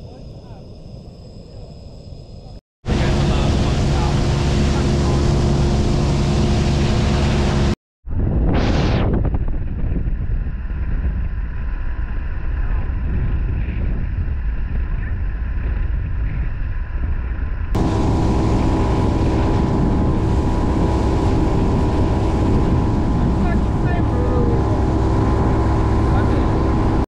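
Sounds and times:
wind rumble on microphone: 0:00.0 - 0:27.0
outboard motor droning: 0:02.9 - 0:07.8, 0:17.8 - 0:27.0.

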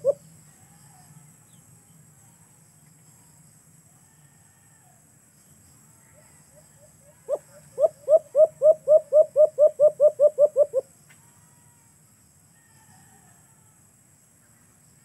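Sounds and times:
dove cooing: 0:07.3 - 0:10.8.

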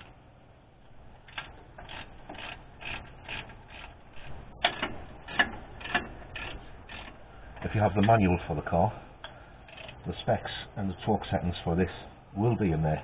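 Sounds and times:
ratchet wrench clicking: 0:01.3 - 0:07.2, 0:09.7 - 0:10.0.

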